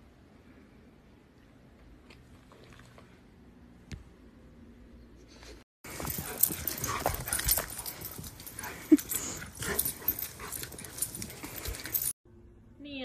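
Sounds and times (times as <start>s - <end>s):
puppies scuffling: 5.9s - 12.1s.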